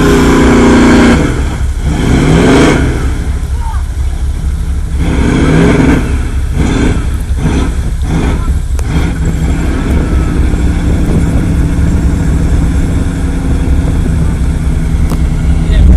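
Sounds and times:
truck engine revving: 0.0 - 15.9.

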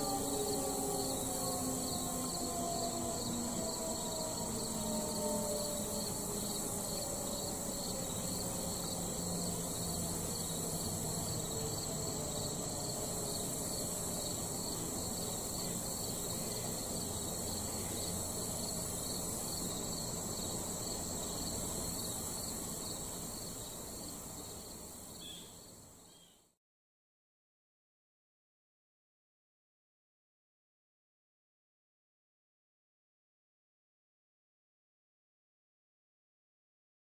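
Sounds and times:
distant warning siren winding down: 0.0 - 24.4
crickets chirring: 0.0 - 26.4.

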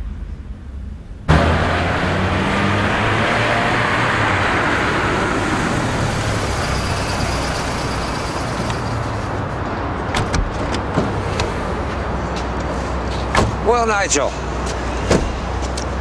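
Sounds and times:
car driving past: 1.3 - 9.9.

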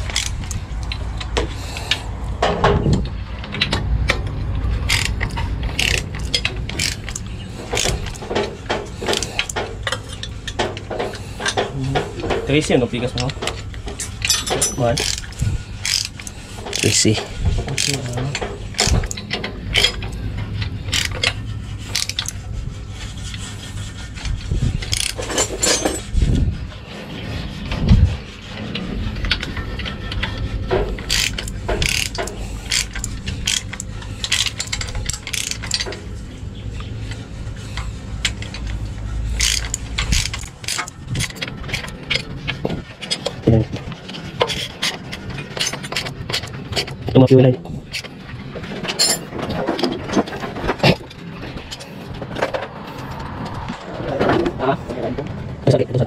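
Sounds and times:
ratchet wrench clicking: 0.0 - 2.0, 3.5 - 8.3, 14.0 - 20.2, 20.9 - 22.4, 24.8 - 25.8, 30.9 - 35.9, 39.3 - 42.3
metal tools knocking: 0.0 - 22.4, 24.8 - 26.1, 29.2 - 36.2, 36.8 - 52.7
steady low hum: 0.0 - 56.0.

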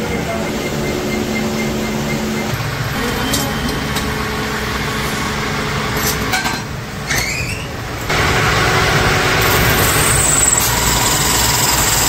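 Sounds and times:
workshop machinery rumble: 0.0 - 12.0
short rising squeak: 7.0 - 7.8, 9.4 - 12.0
lathe cutting hiss: 8.2 - 12.0.

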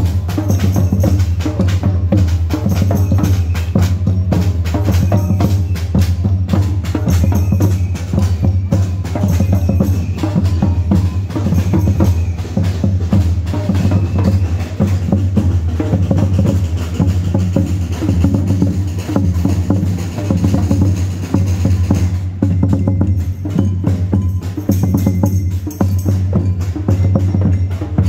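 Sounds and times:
bass drums beaten with mallets: 0.0 - 28.0.

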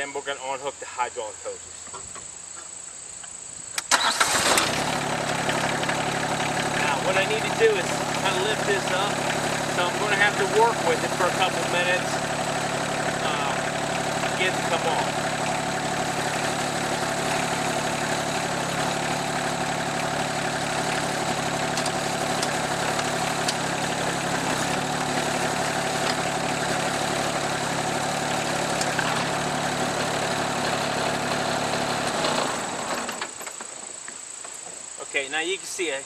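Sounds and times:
crickets chirping: 0.0 - 24.4, 32.8 - 36.0
tractor engine running: 3.8 - 34.0.

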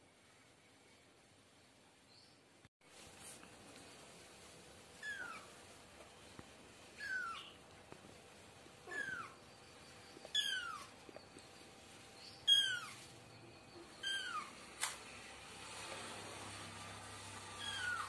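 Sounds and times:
kitten meowing: 5.0 - 5.5, 7.0 - 7.6, 8.9 - 9.4, 10.3 - 10.9, 12.5 - 13.0, 14.0 - 14.6, 17.6 - 18.0.

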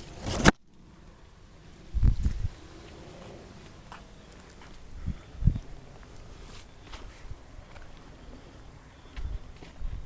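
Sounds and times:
wind rumbling on microphone: 1.8 - 3.9, 4.6 - 10.0
footsteps on concrete: 2.2 - 4.9, 6.0 - 8.1, 9.1 - 10.0.

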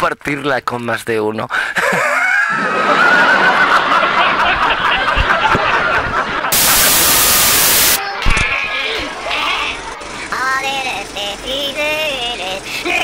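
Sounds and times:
people laughing and chattering: 2.6 - 10.4
static hiss: 6.5 - 8.0.

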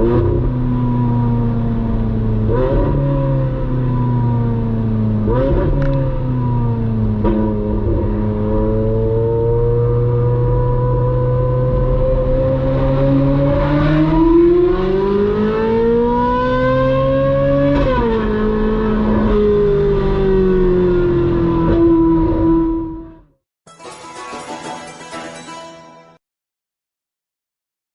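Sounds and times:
sports car engine revving: 0.0 - 23.1.

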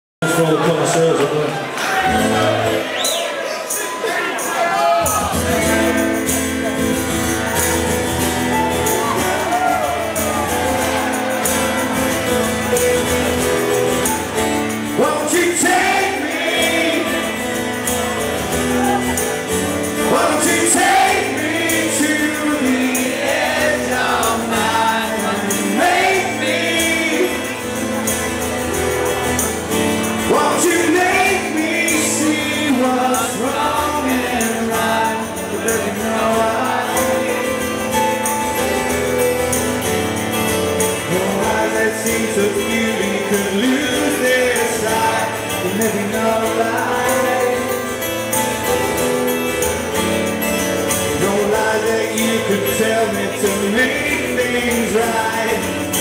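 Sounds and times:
acoustic guitar strummed over band: 0.2 - 56.0
man singing lead vocal: 14.7 - 17.8, 19.8 - 28.0, 30.2 - 38.2, 40.9 - 48.8, 50.9 - 56.0.

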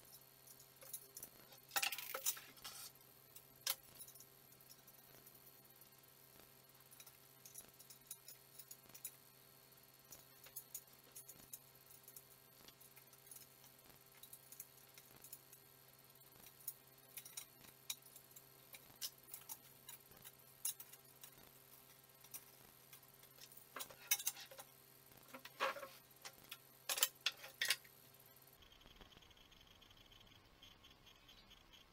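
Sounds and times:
metallic clicks of tools and bolts: 0.0 - 5.2, 6.8 - 9.2, 10.1 - 28.0.

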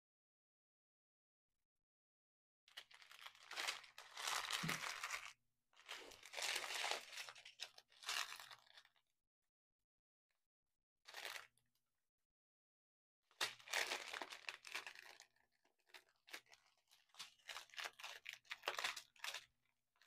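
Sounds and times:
plastic bags crinkling: 2.7 - 8.8, 13.4 - 19.5.

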